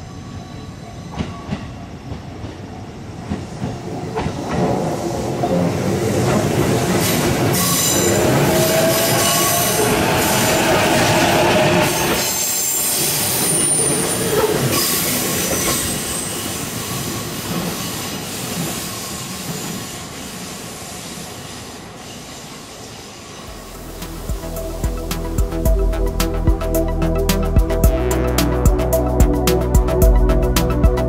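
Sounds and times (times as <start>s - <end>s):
train wheel squeal: 0.0s - 2.4s, 6.9s - 23.6s
electric train passing: 0.0s - 30.8s.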